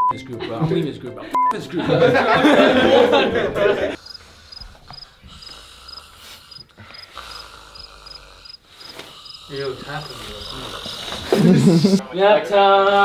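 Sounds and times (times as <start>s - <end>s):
cricket chirping: 4.0s - 11.4s.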